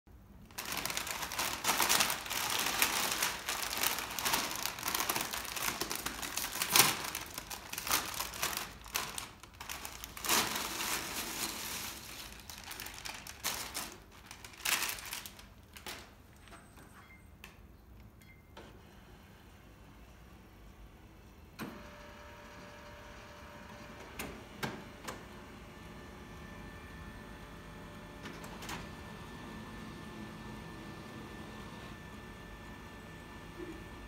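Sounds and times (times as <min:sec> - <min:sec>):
foil chip bag crinkling: 0:00.4 - 0:16.3.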